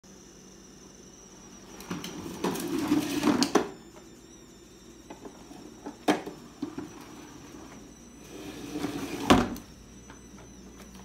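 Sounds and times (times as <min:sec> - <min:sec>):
toy car rolling on wooden floor: 0:01.8 - 0:03.7.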